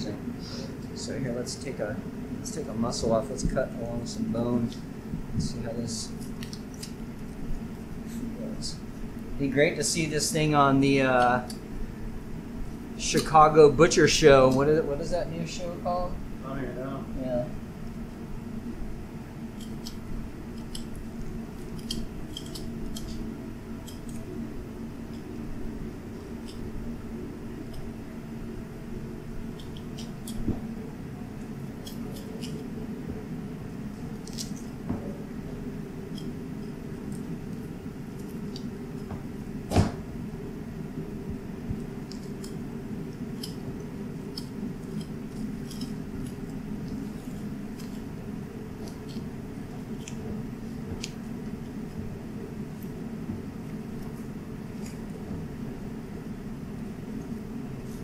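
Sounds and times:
low hum: 0.0 - 58.0
knife scraping against bone: 19.5 - 24.4, 31.7 - 32.7, 43.2 - 48.2, 48.8 - 50.4
knife blade clicking on bone: 20.6 - 21.0, 21.6 - 23.2, 23.8 - 24.3, 43.4 - 43.6.

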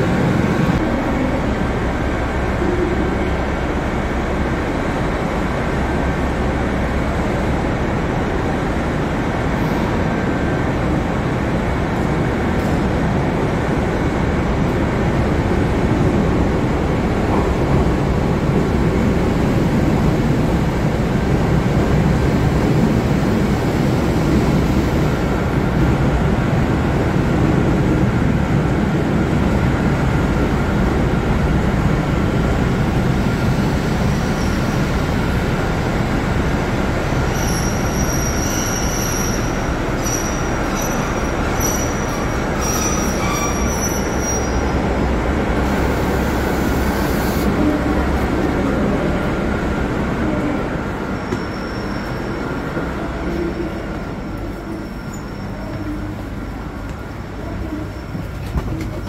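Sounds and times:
train rumbling: 0.0 - 59.0
wheel and brake squeal: 37.3 - 44.8, 51.2 - 52.4.

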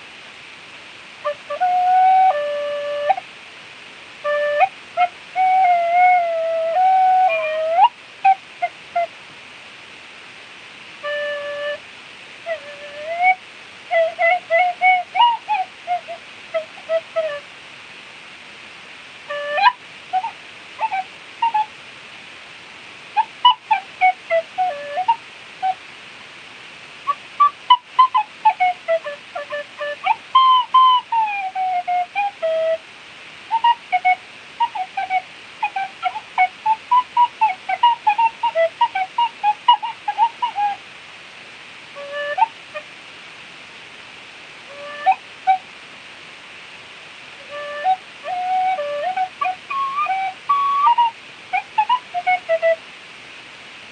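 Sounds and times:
breathy hiss: 0.0 - 53.9
tin whistle melody: 1.2 - 3.2, 4.2 - 9.1, 11.0 - 11.8, 12.4 - 17.4, 19.3 - 21.7, 23.2 - 25.8, 27.1 - 32.8, 33.5 - 40.8, 42.0 - 42.8, 44.7 - 45.6, 47.4 - 52.8.

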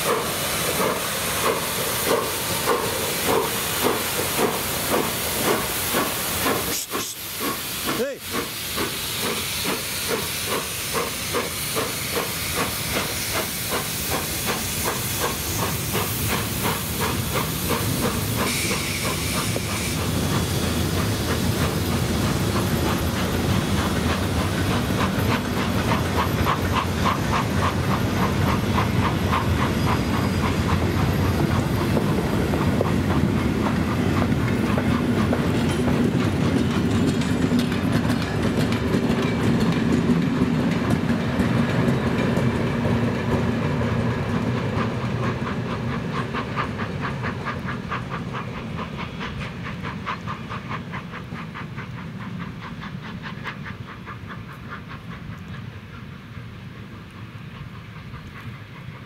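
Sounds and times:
steam hissing: 0.0 - 59.0
steam locomotive exhaust beats: 0.0 - 59.0
train wheels clicking over rail joints: 0.0 - 59.0.

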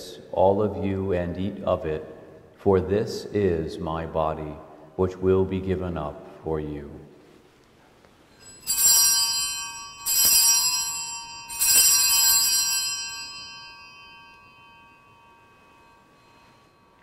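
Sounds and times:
altar bells ringing: 8.3 - 17.0.

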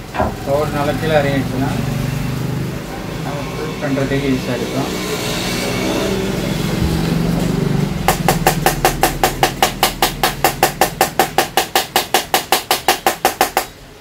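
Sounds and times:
plastic cartridge tapping knocks: 8.1 - 13.8.

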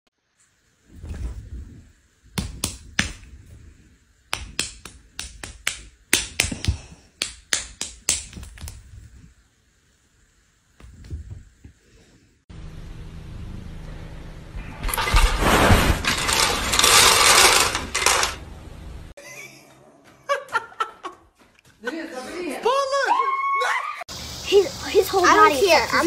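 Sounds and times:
sharp clicks and taps: 4.3 - 8.8
soft thumps: 10.8 - 11.8.

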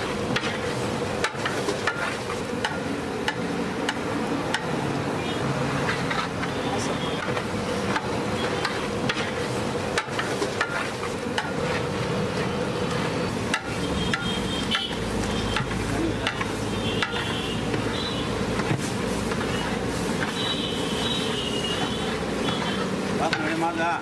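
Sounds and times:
metal ladle scraping a pot: 5.8 - 9.4.

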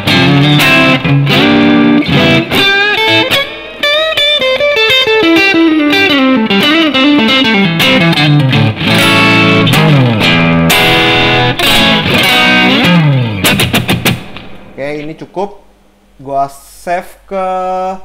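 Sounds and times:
electric guitar lead line with slides: 0.0 - 14.8.

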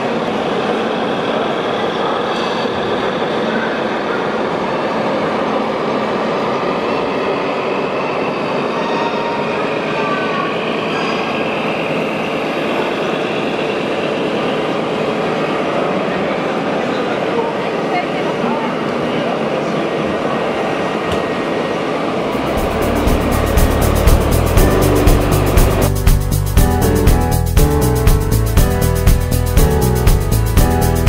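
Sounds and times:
crowd murmur: 0.0 - 6.8, 9.2 - 25.9.

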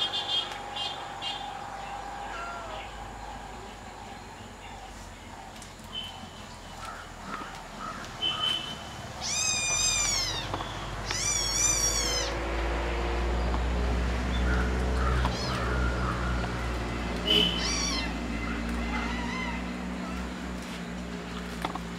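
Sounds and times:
kitten meowing: 9.2 - 12.4, 17.4 - 18.1.

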